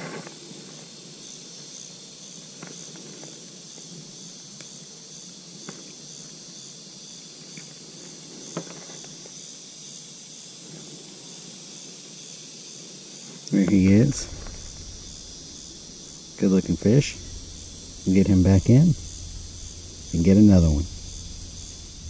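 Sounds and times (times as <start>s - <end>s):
insect chorus: 0.0s - 22.0s.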